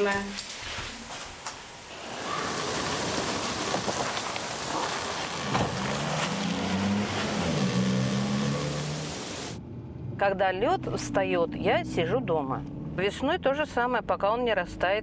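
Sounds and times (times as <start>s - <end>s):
tyre hiss on wet road: 0.4s - 9.6s
car engine hum: 2.3s - 14.8s.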